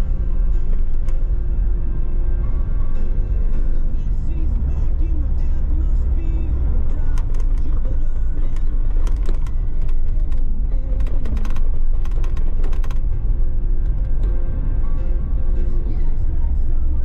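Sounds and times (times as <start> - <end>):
engine and road rumble: 0.0 - 17.0
vehicle knocks and rattles: 8.5 - 13.2.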